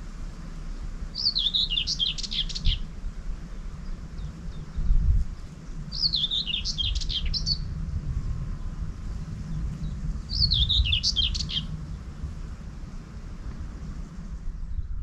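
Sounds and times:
wind buffeting microphone: 0.0s - 15.0s
songbird warbling: 0.6s - 7.8s, 9.8s - 12.1s.

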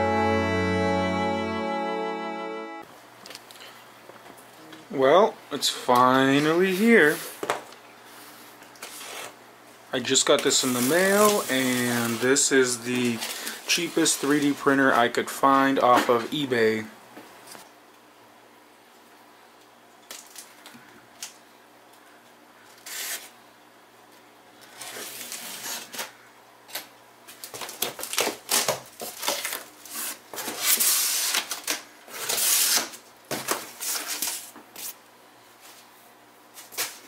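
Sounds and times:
packing tape ripping: 10.6s - 12.3s, 22.7s - 23.3s, 27.4s - 35.0s, 36.6s - 37.0s.

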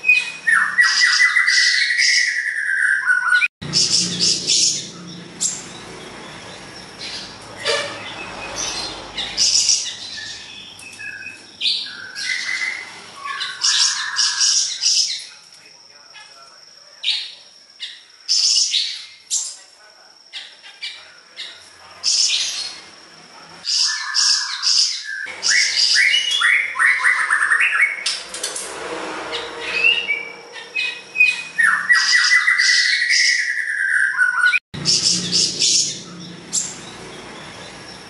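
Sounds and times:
songbird singing: 0.0s - 28.3s, 29.3s - 38.0s.

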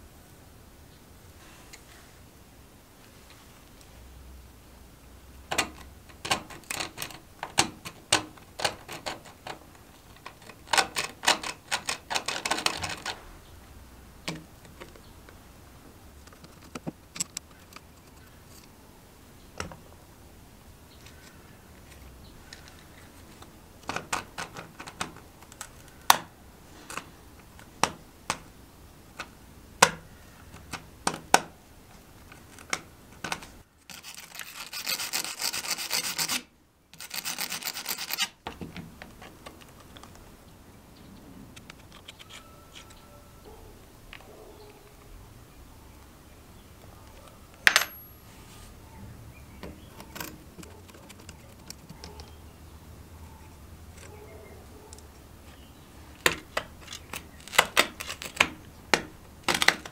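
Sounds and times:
screwdriver clicking on brass screws: 5.5s - 13.2s
wire brush scrubbing: 33.9s - 38.4s.

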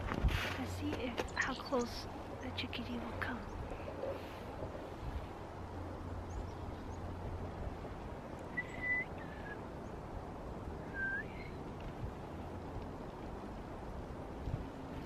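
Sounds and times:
person whistling: 10.9s - 11.4s.

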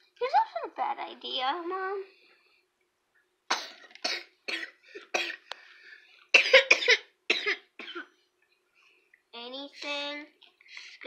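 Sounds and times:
boy coughing: 3.5s - 5.5s, 6.4s - 8.1s.

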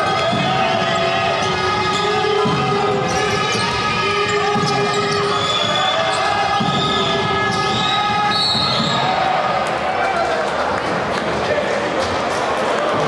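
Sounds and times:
crowd voices: 0.0s - 13.0s
shoe squeaks: 3.1s - 9.1s.

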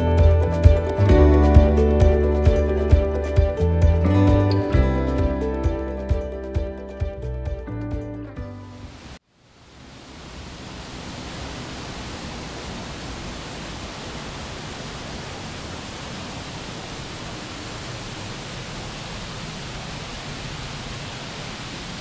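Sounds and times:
waterfall rushing: 8.8s - 22.0s.

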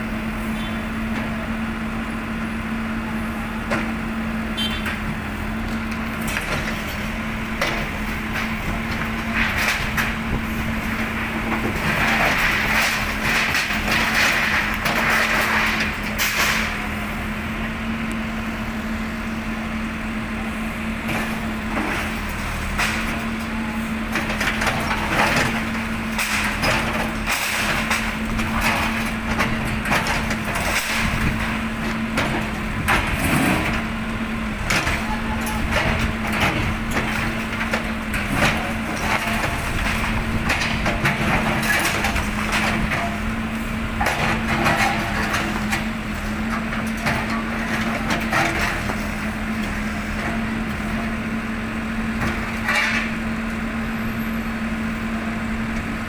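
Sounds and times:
backhoe engine running: 0.0s - 56.0s
debris cracking and crashing: 5.8s - 16.8s, 21.3s - 34.0s, 34.6s - 50.4s.

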